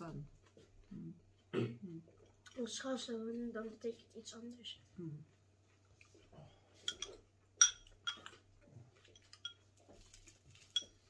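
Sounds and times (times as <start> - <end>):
spoon clinking against bowl: 6.8 - 8.4, 9.2 - 9.7, 10.6 - 11.0.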